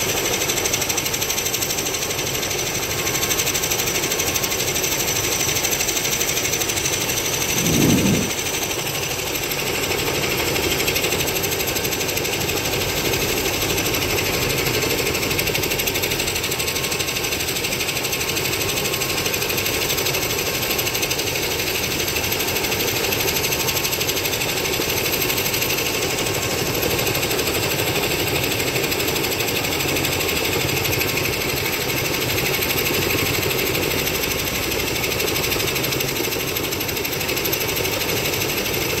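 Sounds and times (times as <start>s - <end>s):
helicopter engine and rotor: 0.0s - 39.0s.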